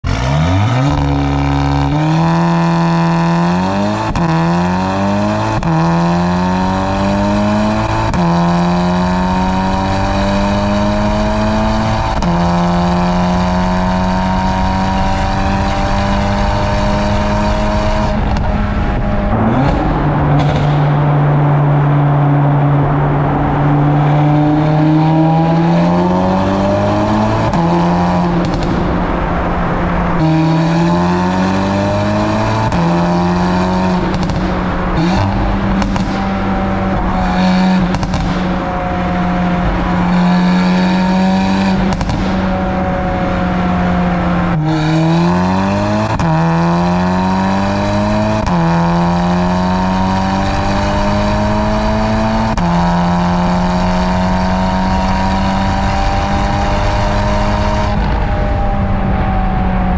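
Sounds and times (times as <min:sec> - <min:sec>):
car exhaust accelerating hard: 0:00.0 - 0:59.9.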